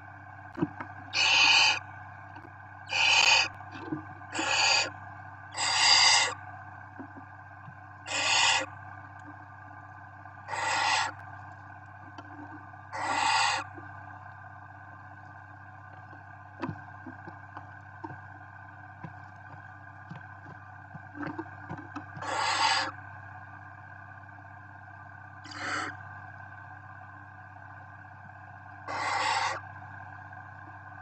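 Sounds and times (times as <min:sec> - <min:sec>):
low electrical hum: 0:00.0 - 0:31.0
owl chicks hissing: 0:01.1 - 0:01.8, 0:02.9 - 0:03.6, 0:04.3 - 0:06.4, 0:08.1 - 0:08.7, 0:10.5 - 0:11.2, 0:12.9 - 0:13.7, 0:22.2 - 0:22.9, 0:25.5 - 0:26.0, 0:28.9 - 0:29.6.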